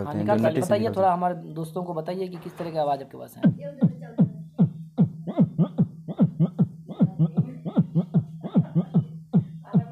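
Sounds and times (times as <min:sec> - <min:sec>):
steady low hum: 0:03.3 - 0:09.9
man beatboxing bass-kick thumps: 0:03.4 - 0:09.9.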